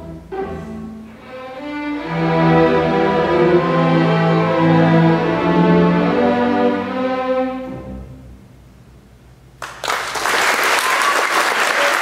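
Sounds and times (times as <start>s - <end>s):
string orchestra chord: 0.0s - 8.6s
audience applause: 9.6s - 12.0s.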